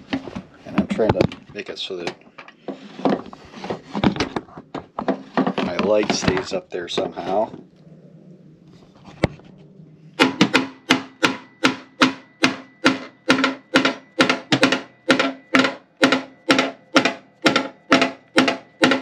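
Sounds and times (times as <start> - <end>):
hammer striking steel: 10.2 - 19.0.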